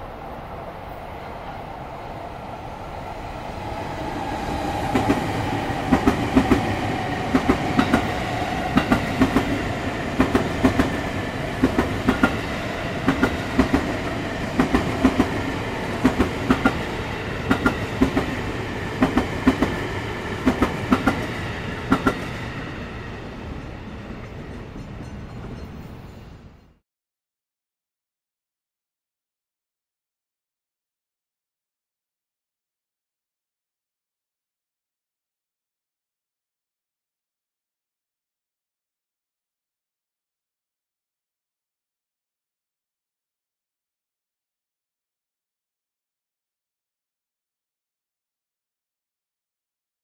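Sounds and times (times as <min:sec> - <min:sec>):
train rumble and hum: 0:00.0 - 0:26.7
train wheels clicking on rail joints: 0:04.8 - 0:22.4.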